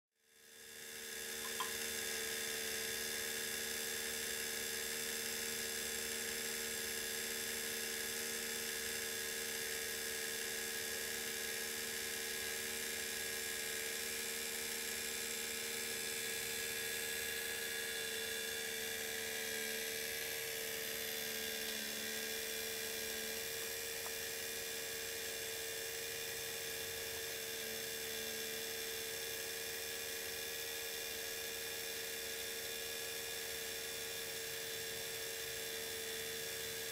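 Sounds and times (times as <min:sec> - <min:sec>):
small motor humming: 0:00.2 - 0:36.9.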